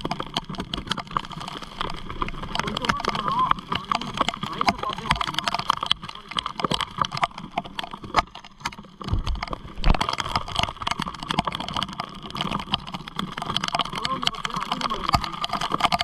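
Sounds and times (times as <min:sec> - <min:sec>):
irregular clicks and knocks: 0:00.0 - 0:16.0
rain: 0:00.0 - 0:16.0
wind noise: 0:09.0 - 0:12.5
low rumble and thud: 0:09.1 - 0:10.1.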